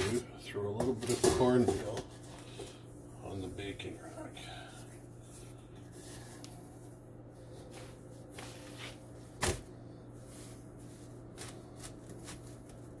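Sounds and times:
hands rubbing dough: 2.0 - 3.6, 4.6 - 13.0.

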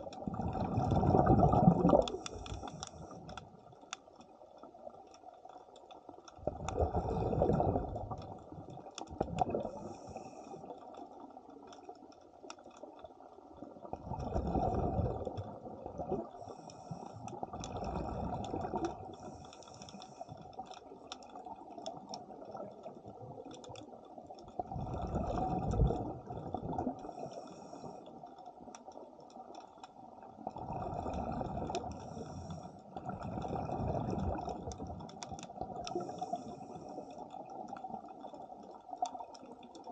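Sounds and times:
faint clicks: 0.0 - 14.6, 15.2 - 39.9
scuba exhalation bubbling: 0.2 - 2.3, 6.4 - 8.2, 9.2 - 9.9, 14.0 - 16.3, 17.6 - 19.0, 24.6 - 27.0, 30.6 - 31.9, 33.0 - 35.0.

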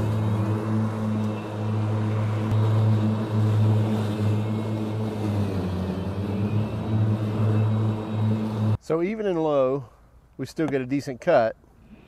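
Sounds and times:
electric mower humming: 0.0 - 8.8.

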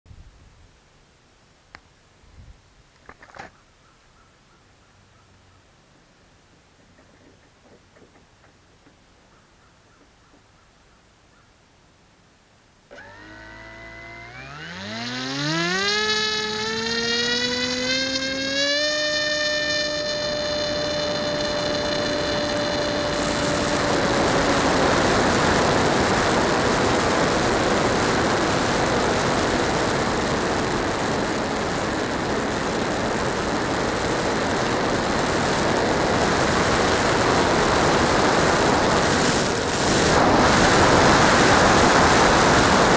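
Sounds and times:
electric motor and propeller whine: 12.9 - 42.9.

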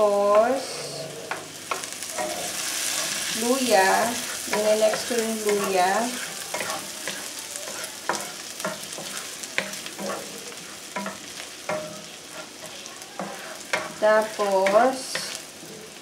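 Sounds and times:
garlic sizzling in hot oil: 0.0 - 16.0
wooden spatula scraping pan: 0.5 - 15.4.

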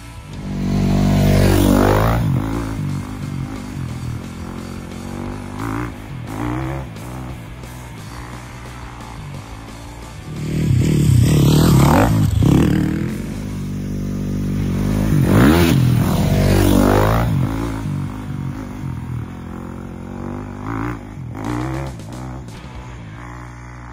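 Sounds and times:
dirt bike engine revving: 0.0 - 23.9.

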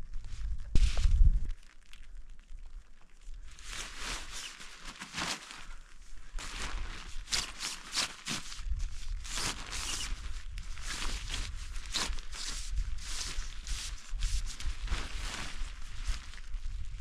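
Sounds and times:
wind rumble on microphone: 0.0 - 4.0, 8.4 - 17.0
tent fabric rustling and crinkling: 0.0 - 17.0.

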